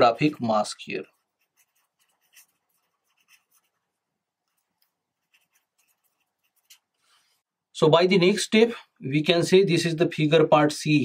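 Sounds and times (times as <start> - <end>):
marker pen scratching on paper: 1.0 - 7.4.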